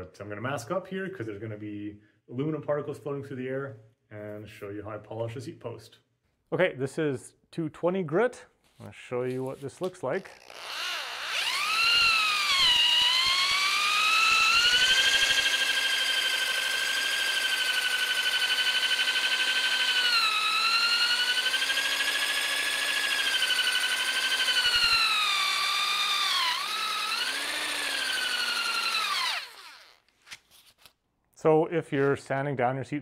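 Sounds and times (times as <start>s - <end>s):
electric drill motor whine: 10.3s - 30.0s.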